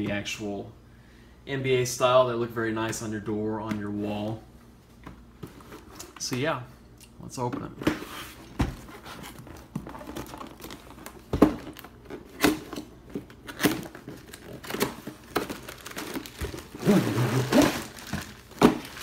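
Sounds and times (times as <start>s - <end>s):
packaging crinkling and rustling: 8.7s - 19.0s.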